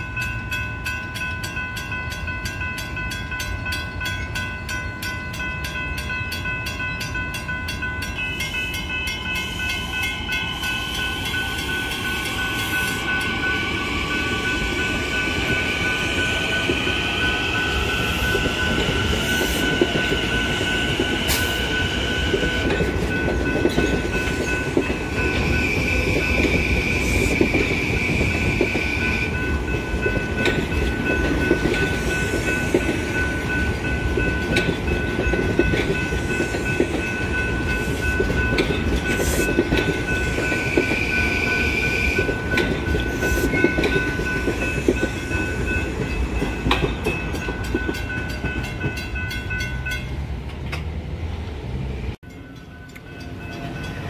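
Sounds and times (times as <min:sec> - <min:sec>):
crossing warning bell ringing: 0:00.0 - 0:50.9, 0:52.2 - 0:54.0
train wheels rumbling and clacking: 0:00.0 - 0:54.0
train motor whine: 0:24.2 - 0:30.0.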